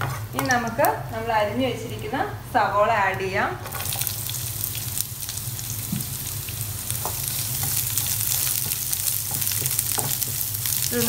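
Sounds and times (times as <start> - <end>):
onions sizzling in oil: 0.0 - 11.0
wooden spatula stirring: 7.0 - 11.0.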